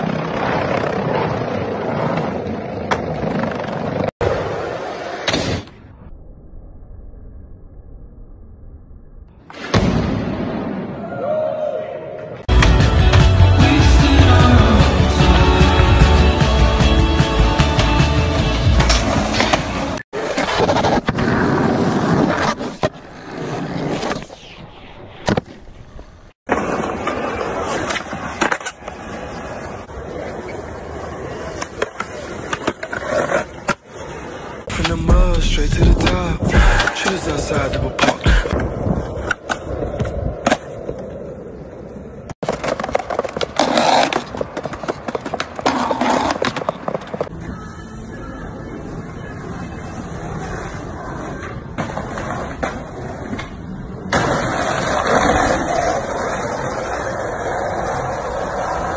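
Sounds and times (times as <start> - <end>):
skateboard wheels rolling on concrete: 0.0 - 6.1, 10.5 - 35.1, 36.0 - 58.9
music: 12.5 - 20.0
skateboard clacking: 42.4 - 47.3.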